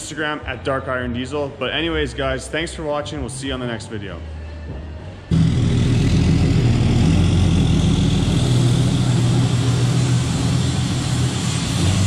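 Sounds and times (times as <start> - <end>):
diesel truck engine droning: 5.3 - 12.0.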